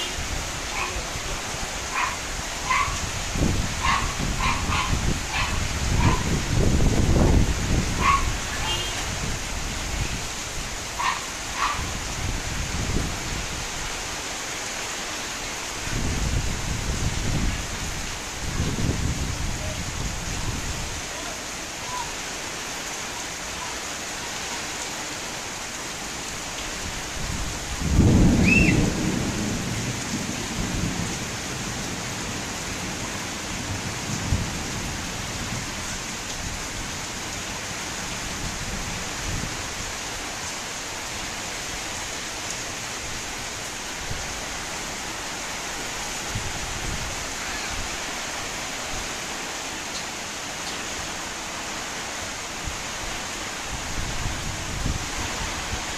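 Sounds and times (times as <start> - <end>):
heavy rain falling: 0.0 - 55.9
thunder clap rumbling: 27.8 - 32.0.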